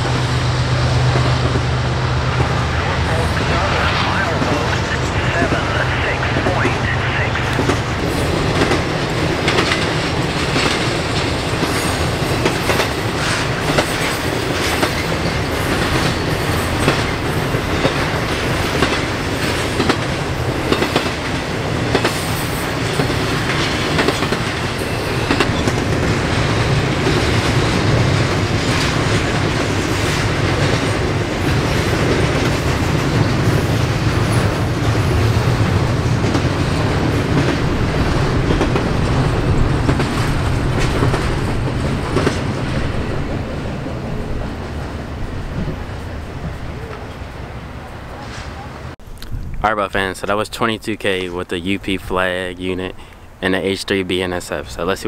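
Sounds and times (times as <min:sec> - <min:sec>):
freight train wheels rumbling: 0:00.0 - 0:55.0
clicks and clacks of wheels: 0:09.4 - 0:17.1.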